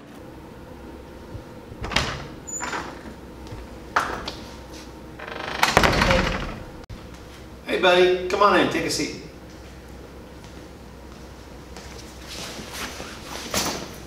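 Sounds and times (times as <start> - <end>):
door swinging shut: 1.8 - 3.1, 5.2 - 6.8.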